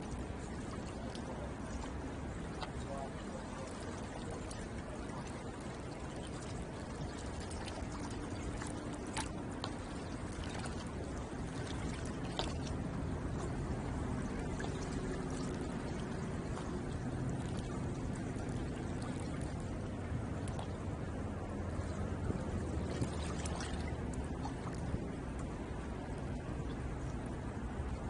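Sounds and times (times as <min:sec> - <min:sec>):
small splashes and clicks: 0:00.0 - 0:20.9, 0:21.7 - 0:28.0
faint low hum: 0:00.0 - 0:28.0
water lapping on shore: 0:00.0 - 0:28.0.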